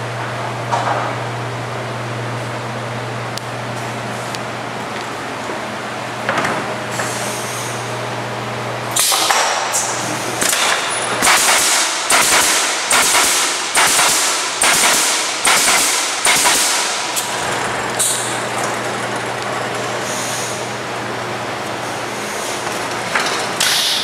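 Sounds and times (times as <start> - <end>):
steady machine hum: 0.0 - 24.0
pneumatic nailer shots: 8.9 - 17.4, 18.0 - 18.3, 23.2 - 24.0.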